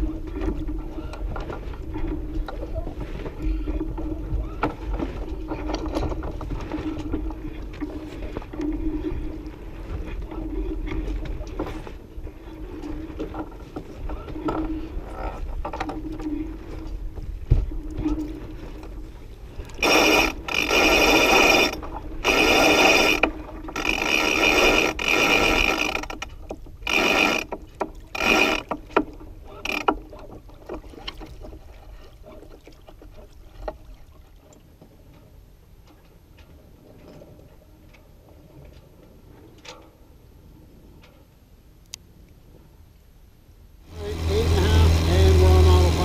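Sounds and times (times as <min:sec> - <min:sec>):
winch ratchet clicking: 0:19.8 - 0:30.1.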